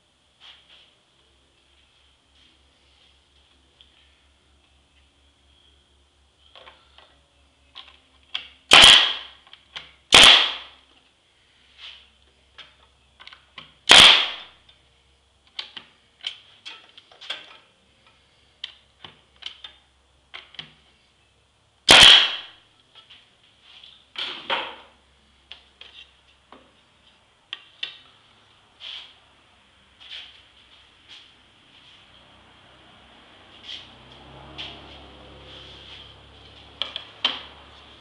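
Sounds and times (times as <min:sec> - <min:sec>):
nail gun shots with hiss: 0:08.7 - 0:09.4, 0:10.1 - 0:10.8, 0:13.9 - 0:14.5, 0:21.9 - 0:22.5.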